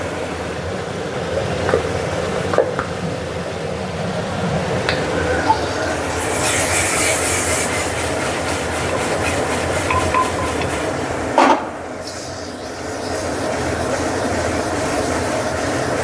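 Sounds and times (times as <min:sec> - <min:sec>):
meat sizzling in a pot: 0:06.1 - 0:11.0, 0:12.0 - 0:16.0
pot being shaken: 0:06.4 - 0:11.1.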